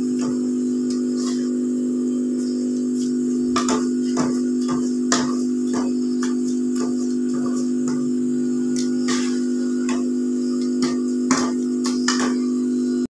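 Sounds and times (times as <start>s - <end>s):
steady low hum: 0.0s - 13.0s
spoon knocking against pot: 9.9s - 12.5s.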